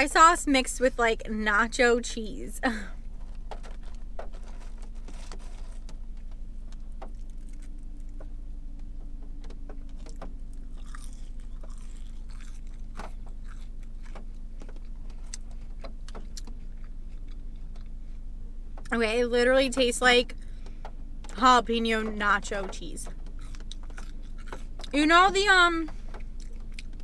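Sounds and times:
steady low hum: 0:00.0 - 0:27.0
person chewing: 0:06.7 - 0:08.3, 0:09.9 - 0:18.2, 0:23.2 - 0:25.0, 0:26.2 - 0:27.0.

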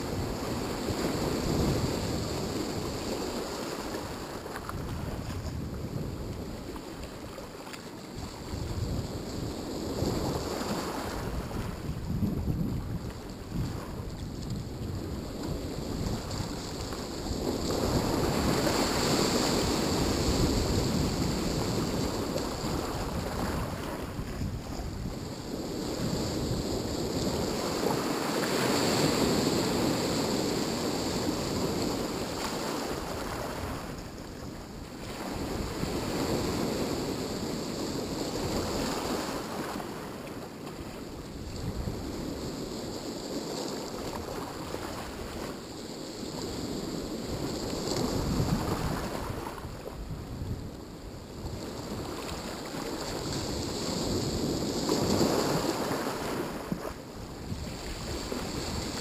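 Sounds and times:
wind buffeting microphone: 0:00.0 - 0:40.1, 0:40.8 - 0:59.0
surf washing onto shore: 0:00.0 - 0:59.0.

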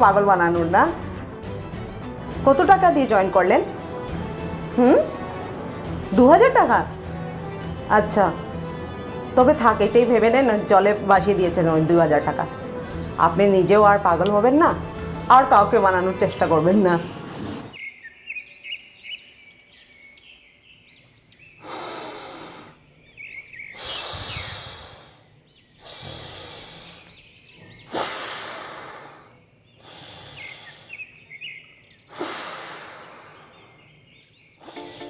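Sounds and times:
birds chirping: 0:00.0 - 0:35.0
man breathing through nose: 0:21.6 - 0:22.8, 0:23.7 - 0:27.2, 0:27.9 - 0:31.2, 0:32.1 - 0:33.9, 0:34.6 - 0:35.0.

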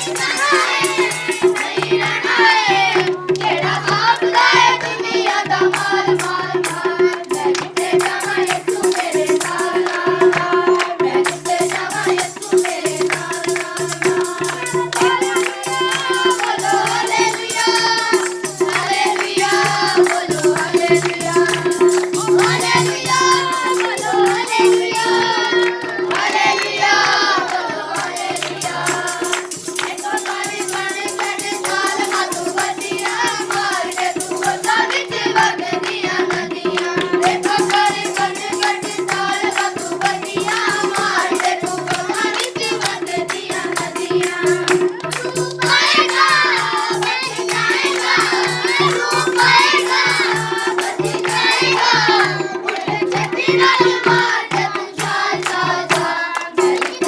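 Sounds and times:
children and women singing: 0:00.0 - 0:57.0
hand clapping: 0:00.0 - 0:57.0
tabla: 0:00.0 - 0:57.0.

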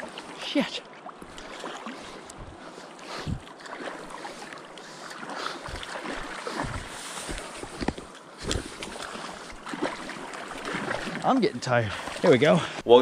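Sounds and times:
water sloshing from wading: 0:00.0 - 0:12.9
dull low bumps: 0:02.3 - 0:03.5.

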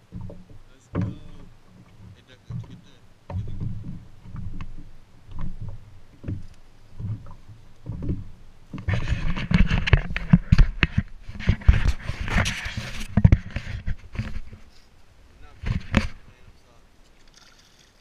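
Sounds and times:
wind on microphone: 0:00.0 - 0:16.7
water slapping boat hull: 0:00.0 - 0:18.0
sharp knocks on camera: 0:00.1 - 0:14.4.

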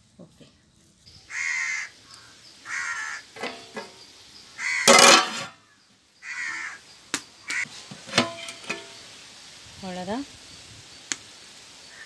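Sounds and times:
harsh bird calls: 0:01.1 - 0:07.7.

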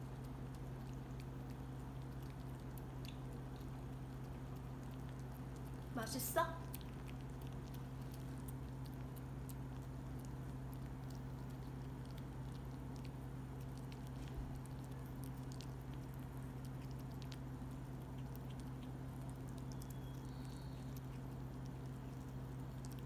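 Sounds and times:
low hum: 0:00.0 - 0:23.0
puppy licking and nibbling: 0:00.0 - 0:23.0
faint high chirp: 0:19.7 - 0:21.0.

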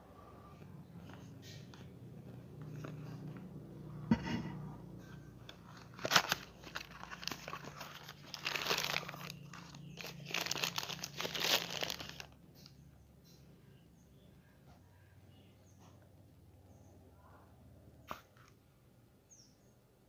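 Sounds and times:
cardboard and plastic crinkling: 0:05.5 - 0:12.4.

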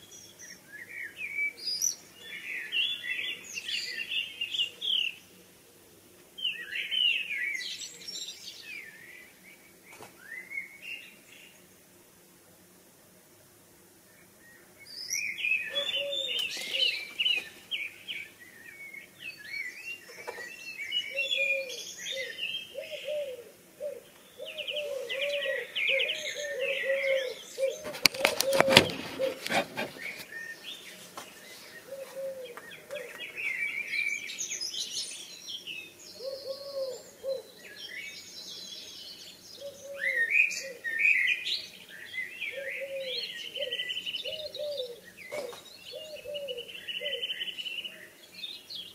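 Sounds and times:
songbirds chirping and trilling: 0:00.0 - 0:48.9
dove cooing: 0:15.6 - 0:17.4, 0:20.1 - 0:30.4, 0:31.8 - 0:33.9, 0:36.2 - 0:37.6, 0:39.6 - 0:41.4, 0:42.4 - 0:47.5
crackling clicks: 0:27.9 - 0:29.9.

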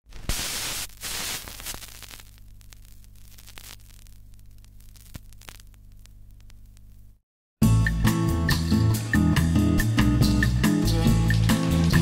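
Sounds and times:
static hiss: 0:00.1 - 0:07.2
low electrical hum: 0:00.4 - 0:07.2.

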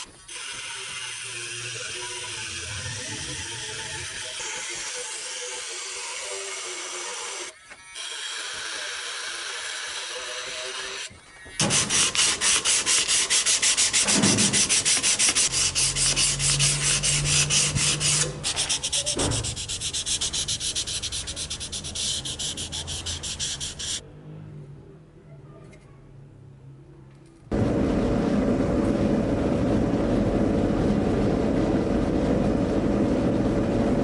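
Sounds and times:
rotary tool grinding metal: 0:00.0 - 0:24.0
hand sanding strokes on blade: 0:11.6 - 0:24.0.

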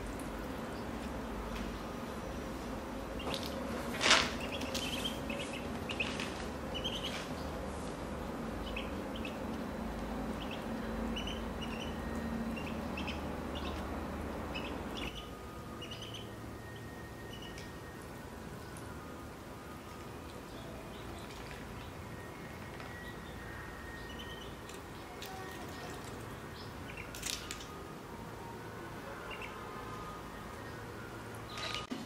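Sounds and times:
ducklings peeping: 0:03.2 - 0:03.6, 0:04.2 - 0:07.5, 0:08.2 - 0:16.3, 0:17.2 - 0:17.7, 0:20.9 - 0:23.4, 0:24.0 - 0:27.7, 0:29.3 - 0:29.6.

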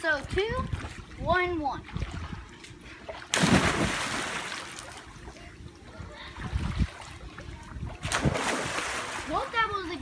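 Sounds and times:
body splashing into pool: 0:03.3 - 0:05.0, 0:08.0 - 0:09.3.

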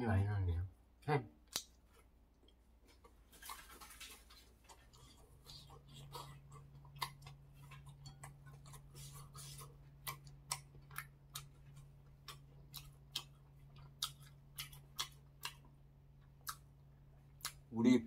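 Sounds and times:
steady low hum: 0:00.0 - 0:18.0
chewing clicks: 0:10.0 - 0:16.7, 0:17.4 - 0:17.6.

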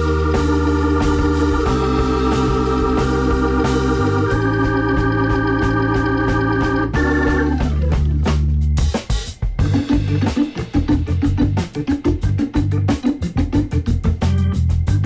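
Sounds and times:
organ holding sustained chords: 0:00.0 - 0:08.4.

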